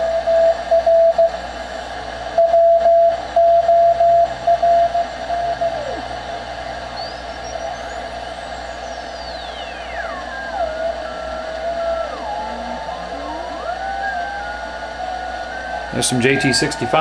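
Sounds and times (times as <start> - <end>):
radio band hiss: 4.3 - 17.0
high whistles sweeping: 7.0 - 17.0.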